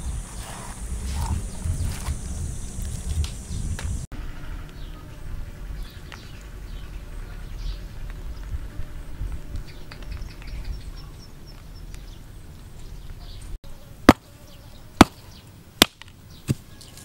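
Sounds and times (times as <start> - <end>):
low rumble: 0.0 - 4.1.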